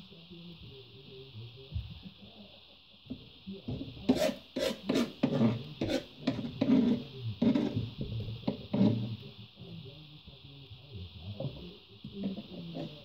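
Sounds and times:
faint hiss: 0:00.0 - 0:06.3, 0:07.0 - 0:13.0
knife cutting on plastic board: 0:04.1 - 0:07.9.

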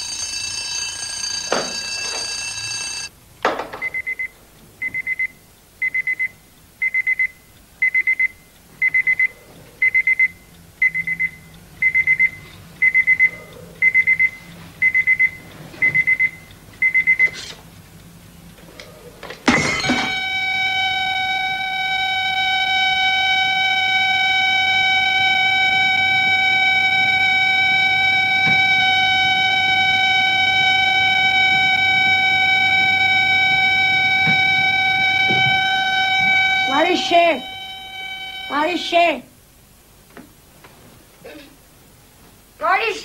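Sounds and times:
alarm clock beeping: 0:00.0 - 0:03.1, 0:03.8 - 0:17.4, 0:19.5 - 0:39.2
steady held chord of tones: 0:19.6 - 0:39.2.

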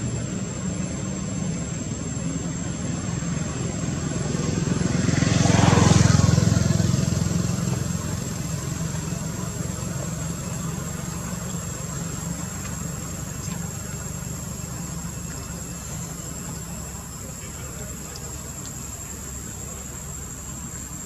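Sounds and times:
motor engine low drone: 0:00.0 - 0:21.0.

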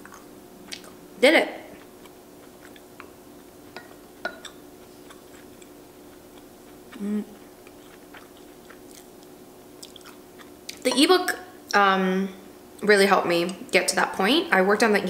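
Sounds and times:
person chewing: 0:00.0 - 0:01.0, 0:01.7 - 0:11.0
person humming: 0:07.0 - 0:07.4.

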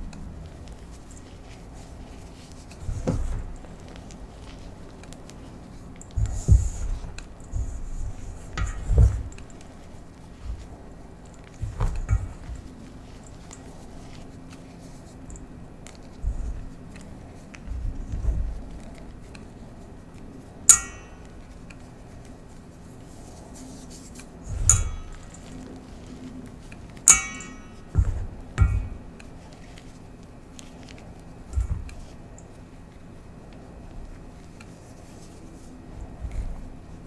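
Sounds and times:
dull thumps: 0:00.0 - 0:14.2, 0:15.3 - 0:19.3, 0:24.4 - 0:26.3, 0:27.0 - 0:29.9, 0:30.9 - 0:32.4
metal bowl knocked and ringing: 0:27.1 - 0:29.0.

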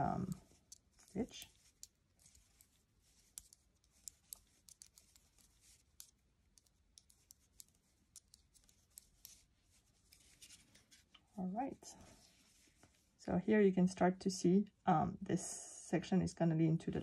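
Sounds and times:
knitting needles clicking: 0:00.0 - 0:11.4.

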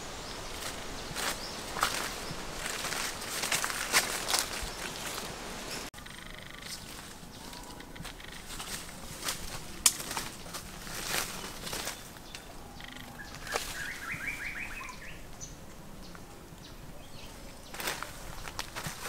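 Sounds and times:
footsteps through dry leaves: 0:00.0 - 0:05.9, 0:06.7 - 0:12.4, 0:13.2 - 0:15.1, 0:17.6 - 0:19.0
rapid bird trill: 0:12.6 - 0:15.2.

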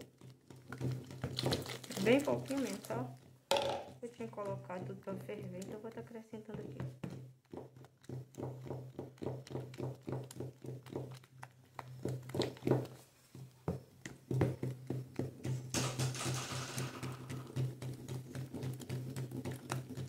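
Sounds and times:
spoon knocking bucket sides: 0:03.5 - 0:04.9, 0:14.3 - 0:20.0
liquid swishing: 0:15.9 - 0:20.0.

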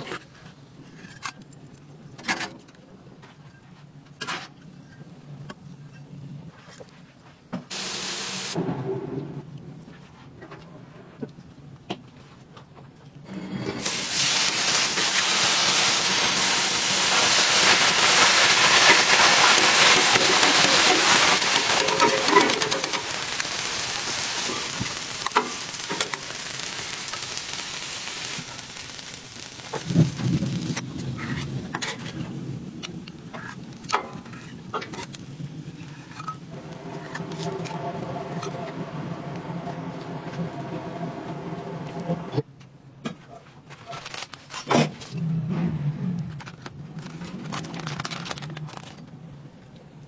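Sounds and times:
onions sizzling on a griddle: 0:07.7 - 0:08.6, 0:13.4 - 0:32.6, 0:33.2 - 0:40.0
metal tongs tossing onions: 0:13.8 - 0:30.8.

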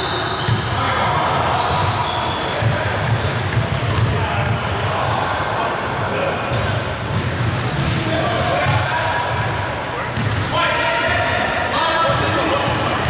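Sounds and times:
players' voices: 0:00.0 - 0:13.0
sneaker squeaks: 0:00.0 - 0:13.0
basketball dribbling: 0:01.6 - 0:04.2.

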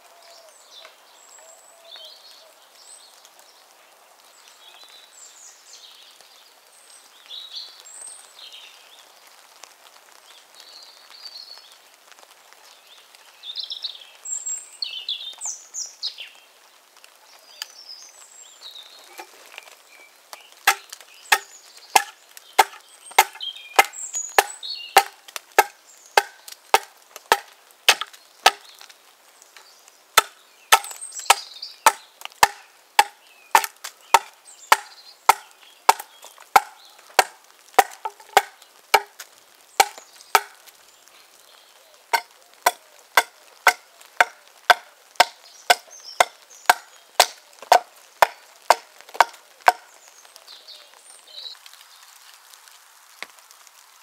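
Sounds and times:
axe chopping wood: 0:20.7 - 0:28.6, 0:30.2 - 0:40.6, 0:42.2 - 0:49.8.

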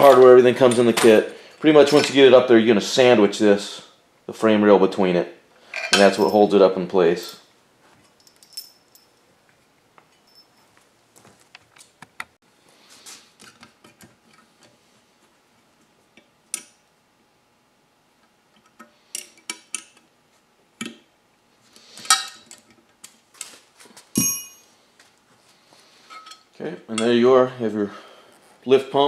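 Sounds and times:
tools clinking against metal: 0:00.0 - 0:02.3, 0:05.7 - 0:06.5, 0:08.0 - 0:09.2, 0:10.1 - 0:10.7, 0:24.2 - 0:24.7
metal piece ringing: 0:24.2 - 0:24.7.

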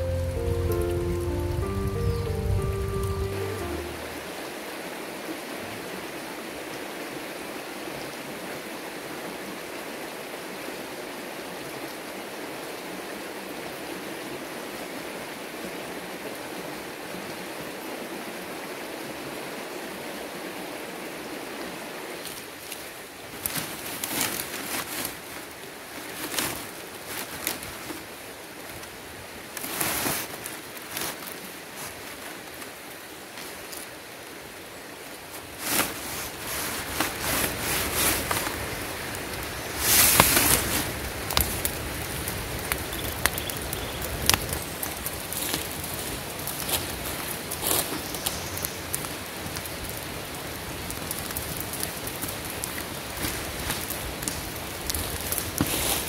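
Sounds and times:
burning leaves crackling: 0:00.0 - 0:04.3, 0:22.2 - 0:33.9, 0:35.2 - 0:56.0.

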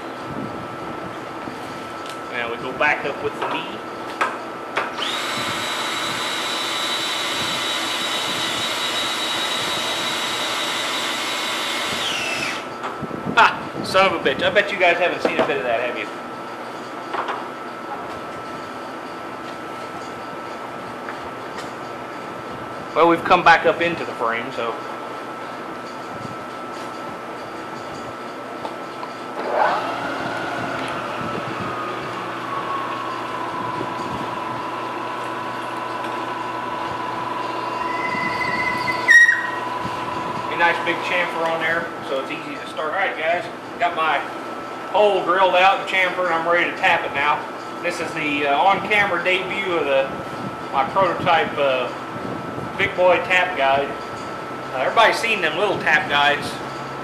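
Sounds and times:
milling machine spindle running: 0:04.8 - 0:12.8, 0:27.3 - 0:44.2
drill click: 0:04.9 - 0:12.7
cordless drill whining: 0:05.0 - 0:12.7.

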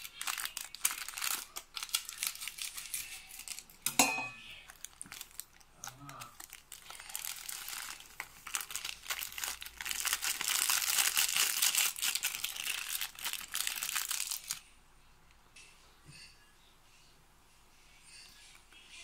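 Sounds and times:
foil sachet crinkling: 0:00.0 - 0:03.8, 0:04.5 - 0:14.6.

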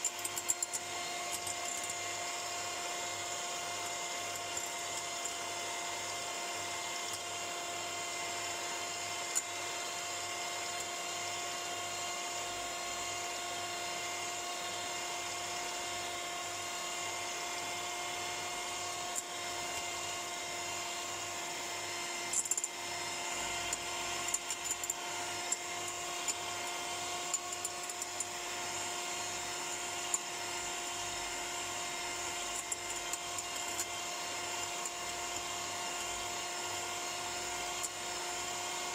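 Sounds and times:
electric hand mixer whining: 0:00.0 - 0:38.9.

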